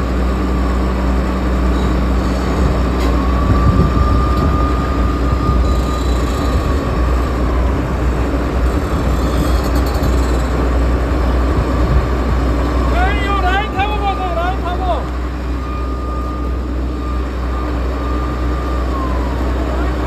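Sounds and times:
diesel engine droning under load: 0.0 - 20.0
thin squeal: 1.7 - 3.4, 5.6 - 7.2, 8.7 - 10.7.

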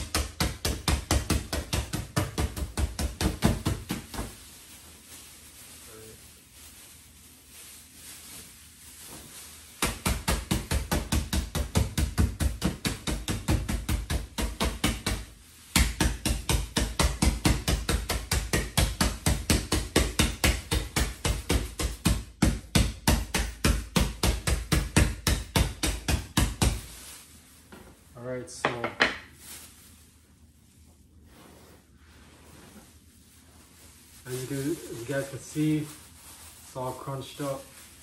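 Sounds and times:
spoon beating plastic bag: 0.0 - 5.5, 7.4 - 27.8, 33.7 - 38.0.

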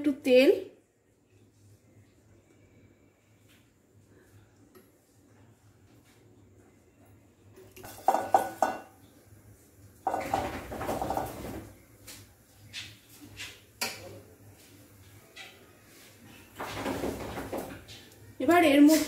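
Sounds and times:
spoon knocking on cookware: 7.8 - 9.0.

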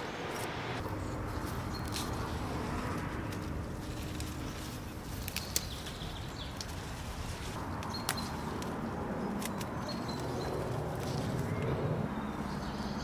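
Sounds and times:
low outdoor rumble: 0.0 - 13.0
tomato stems snapping: 5.0 - 6.8, 9.4 - 9.9.

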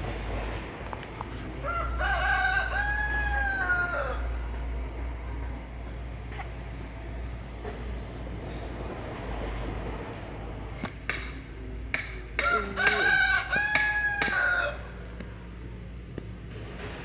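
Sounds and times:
rooster crowing: 1.6 - 4.6, 12.4 - 15.1.

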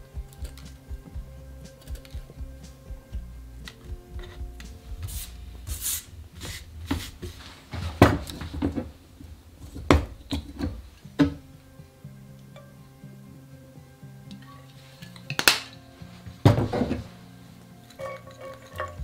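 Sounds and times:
soft background music: 0.0 - 19.0
hand brushing across board: 4.6 - 7.9.

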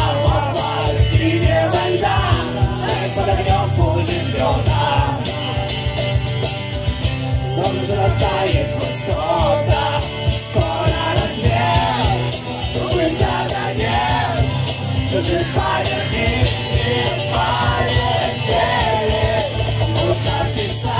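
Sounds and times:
rock band playing: 0.0 - 20.9.

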